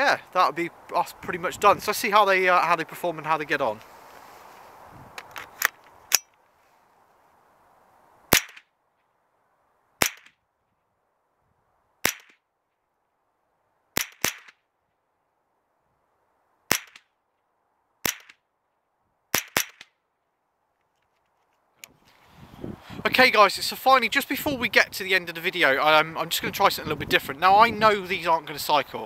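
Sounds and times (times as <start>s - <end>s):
rifle shots: 8.3s - 8.7s, 10.0s - 10.3s, 12.0s - 12.4s, 14.0s - 14.6s, 16.7s - 17.0s, 18.0s - 18.4s, 19.3s - 19.9s.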